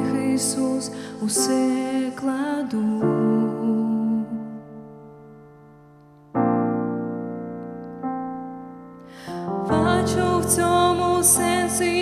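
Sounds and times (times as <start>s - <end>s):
piano chords: 0.0s - 12.0s.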